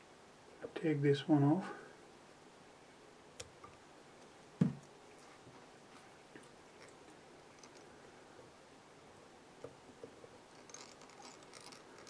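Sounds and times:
fingers rustling materials: 0:10.1 - 0:12.0.

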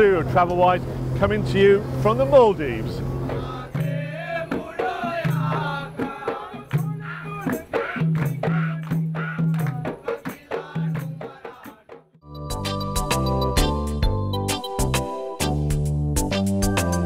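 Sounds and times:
shaker percussion beat: 0:03.3 - 0:15.6
bending melody: 0:12.2 - 0:17.0
low bass notes: 0:12.3 - 0:17.0.

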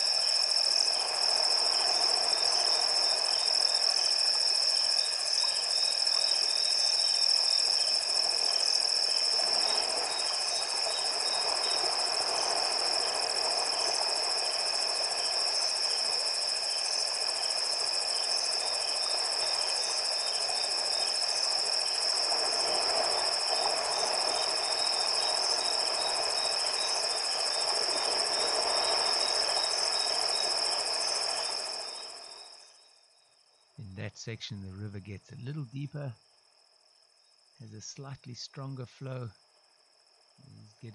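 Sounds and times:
night insects trilling: 0:00.0 - 0:40.9.

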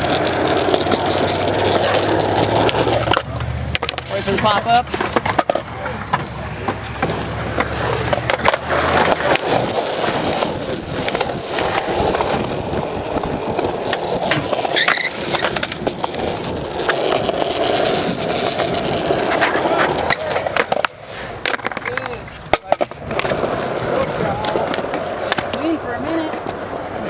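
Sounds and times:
skateboard wheels on concrete: 0:00.0 - 0:27.0.

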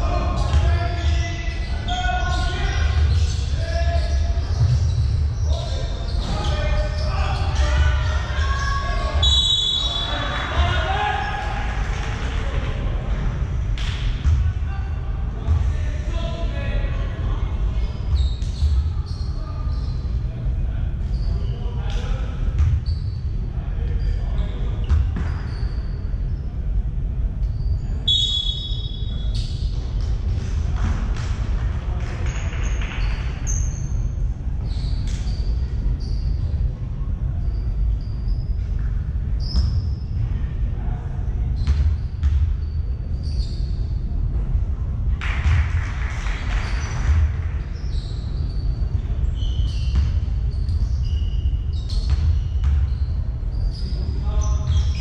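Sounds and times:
low hall rumble: 0:00.0 - 0:55.0
basketball bouncing: 0:13.8 - 0:14.5, 0:41.6 - 0:42.6, 0:51.9 - 0:53.0
shoes squeaking on court: 0:24.1 - 0:26.0, 0:49.3 - 0:55.0
steady low rumble: 0:35.4 - 0:49.3.

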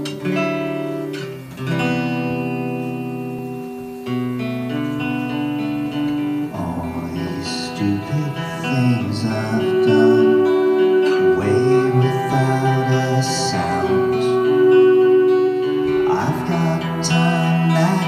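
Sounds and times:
guitar chords ringing: 0:00.0 - 0:18.0
person singing: 0:06.2 - 0:18.0
live band music: 0:07.7 - 0:18.0.

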